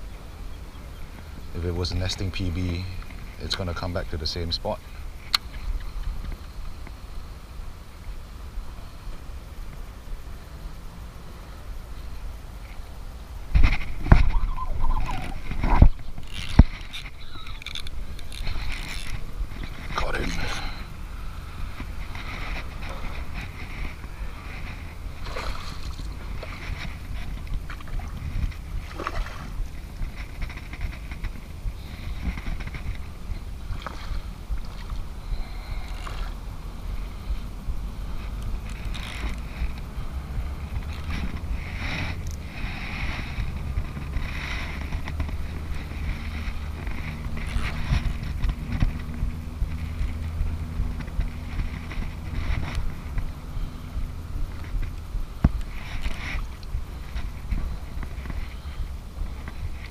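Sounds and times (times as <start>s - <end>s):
faint steady hum: 0.0s - 59.9s
wind buffeting microphone: 11.7s - 59.9s
short clicks and rustles: 13.5s - 20.9s.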